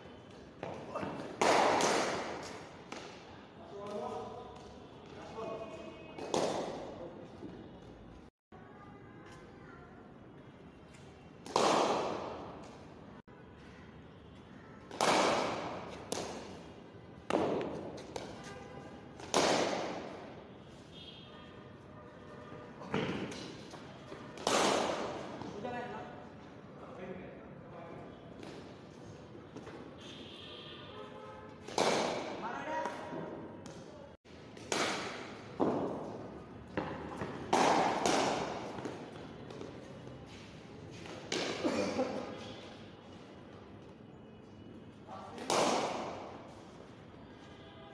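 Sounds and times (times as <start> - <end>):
cricket bat striking ball: 0.6 - 3.2, 6.2 - 6.9, 11.4 - 12.7, 14.8 - 16.6, 17.3 - 18.4, 19.2 - 20.4, 22.9 - 23.7, 24.4 - 25.5, 31.6 - 33.8, 34.6 - 39.7, 45.4 - 46.4
balls knocking on concrete: 17.3 - 18.4, 34.5 - 39.8.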